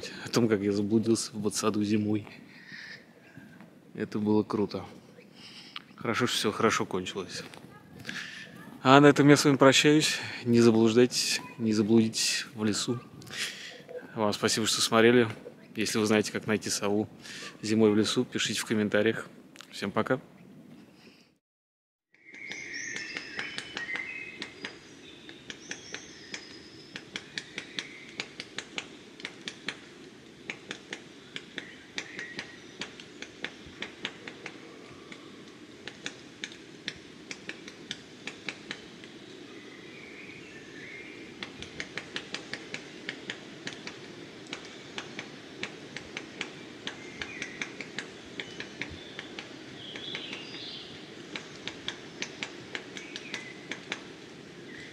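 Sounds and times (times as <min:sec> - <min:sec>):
low background hum: 0:00.0 - 0:21.4, 0:22.3 - 0:54.9
high bird chirps: 0:22.1 - 0:28.3
woodpecker pecking on tree trunk: 0:22.3 - 0:39.2, 0:41.3 - 0:54.2.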